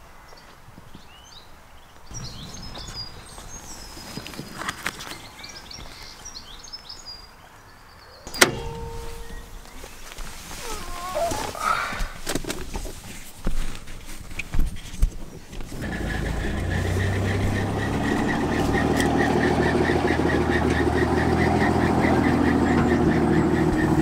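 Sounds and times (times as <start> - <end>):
vehicle engine idling: 2.1 - 6.0, 8.3 - 10.9, 15.7 - 24.0
clicks and knocks: 8.3 - 9.7.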